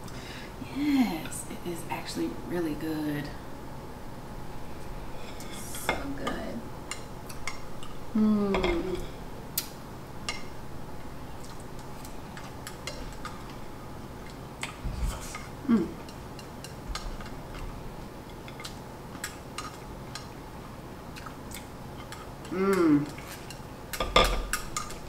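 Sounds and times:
person humming mm: 0:08.1 - 0:09.2, 0:15.6 - 0:16.0, 0:22.4 - 0:23.3.

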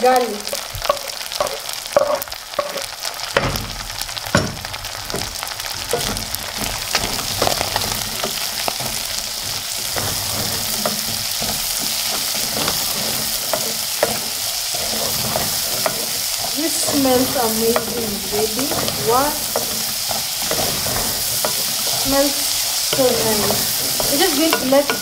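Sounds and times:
meat sizzling in a pan: 0:00.0 - 0:25.0
spatula scraping a pan: 0:00.4 - 0:25.0
spatula knocks: 0:09.9 - 0:25.0.

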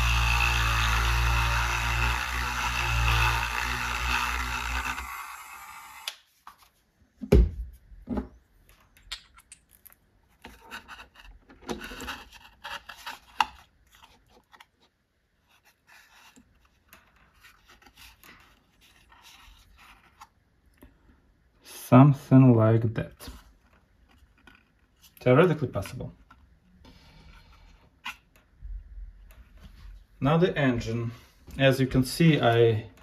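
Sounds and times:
rotary tool spinning down: 0:00.0 - 0:06.1.

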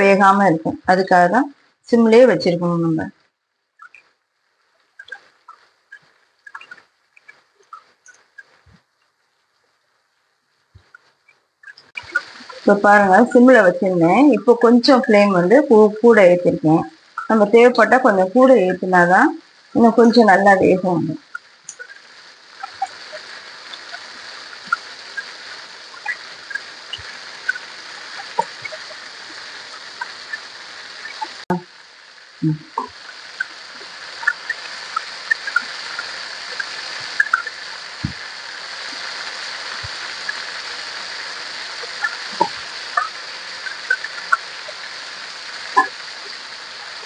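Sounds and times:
oil popping and crackling: 0:03.6 - 0:18.9, 0:19.5 - 0:47.0
chicken sizzling in oil: 0:10.6 - 0:47.0.

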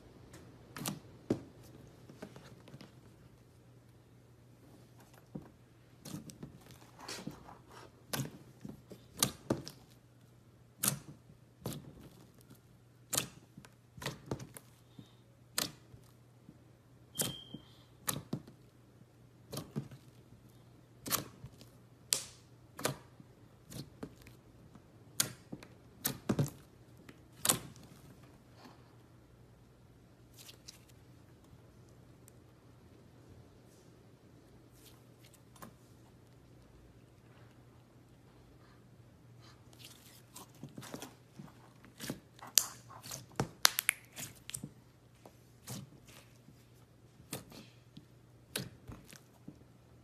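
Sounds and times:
slime popping and clicking: 0:42.4 - 0:44.6.

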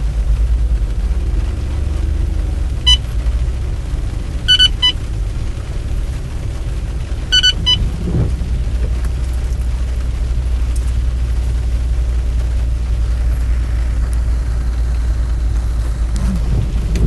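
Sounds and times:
road and engine rumble inside car: 0:00.0 - 0:17.0
short high-pitched beeps: 0:04.5 - 0:05.0, 0:07.3 - 0:07.8.

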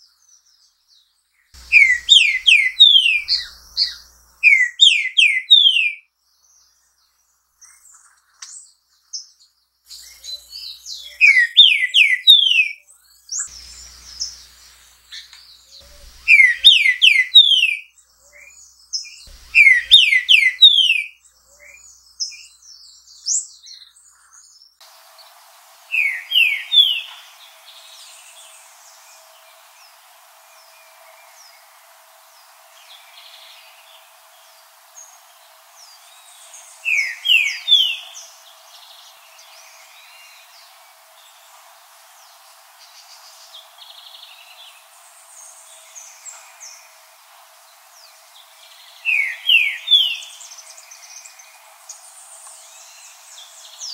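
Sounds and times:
faint high bird chirps: 0:00.0 - 0:41.6, 0:42.2 - 0:53.9
bird whistled song phrases: 0:01.6 - 0:06.0, 0:09.9 - 0:14.4, 0:15.2 - 0:22.5, 0:25.9 - 0:28.3, 0:35.8 - 0:38.4, 0:48.9 - 0:51.2.

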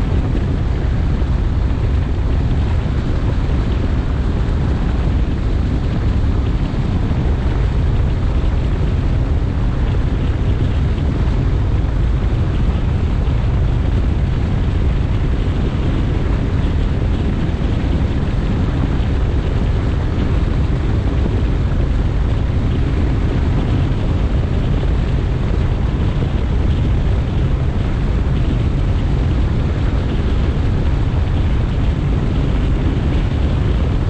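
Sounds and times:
boat hull on water: 0:00.0 - 0:34.0
wind buffeting microphone: 0:00.0 - 0:34.0.

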